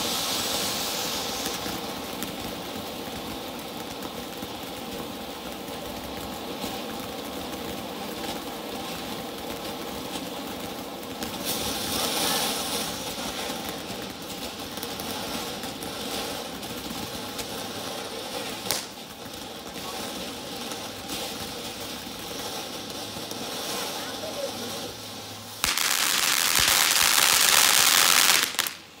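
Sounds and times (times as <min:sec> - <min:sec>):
firework fountain hissing: 0:00.0 - 0:29.0
sharp crack: 0:17.6 - 0:29.0.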